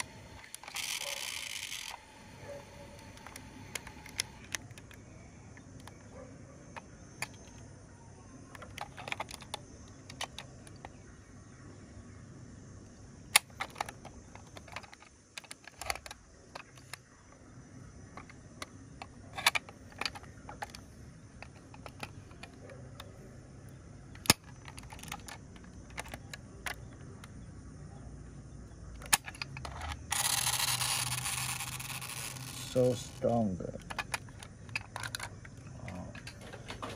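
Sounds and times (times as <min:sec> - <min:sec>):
toy clicks and taps: 0:00.0 - 0:02.0, 0:29.0 - 0:32.6.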